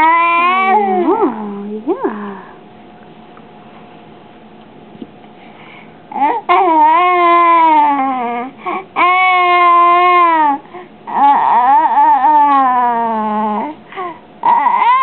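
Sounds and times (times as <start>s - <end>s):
baby vocalizing: 0.0s - 1.4s.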